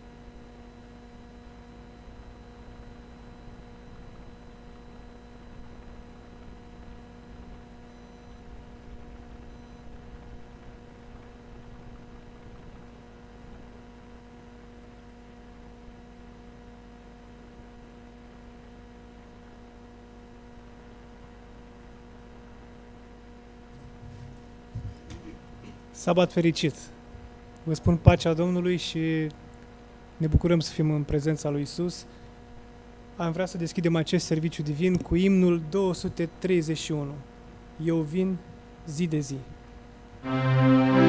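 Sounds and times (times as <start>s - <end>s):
faint high whine: 0.0s - 23.6s, 40.2s - 41.0s
electrical hum: 0.0s - 41.0s.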